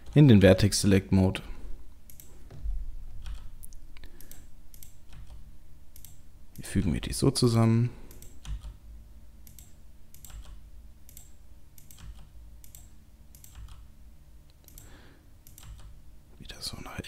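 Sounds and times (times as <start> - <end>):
low hum: 0.0 - 16.8
keyboard key presses: 3.2 - 3.5.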